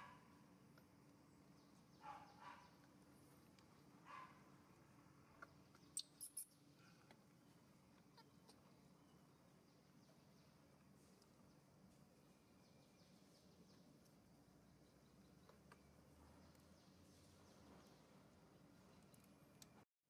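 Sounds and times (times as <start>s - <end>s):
faint steady hum: 0.0s - 19.8s
baby monkey squeaky calls: 6.0s - 6.5s.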